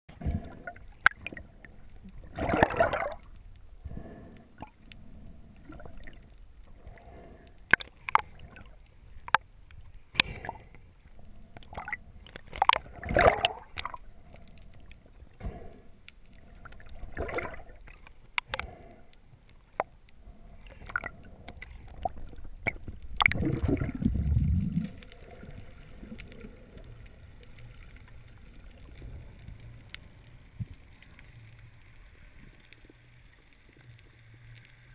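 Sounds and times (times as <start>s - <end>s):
bubbles gurgling: 0.2s - 3.3s, 11.6s - 14.0s, 16.7s - 18.0s, 20.7s - 27.1s.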